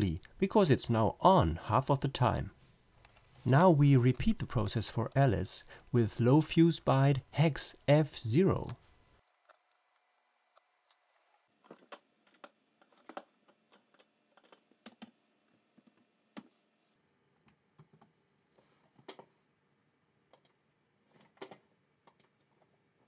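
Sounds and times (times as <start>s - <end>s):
computer keyboard typing: 12.3s - 15.1s.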